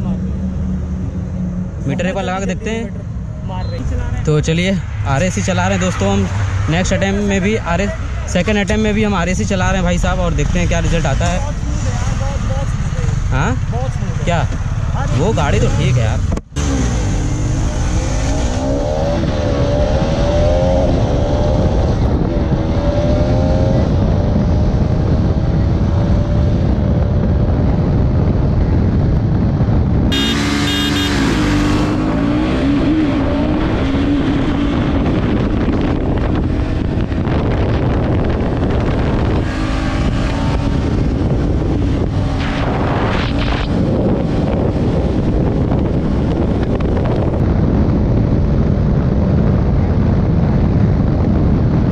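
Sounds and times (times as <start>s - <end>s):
motorcycles accelerating: 0.0s - 51.9s
wind rush on microphone: 0.0s - 51.9s.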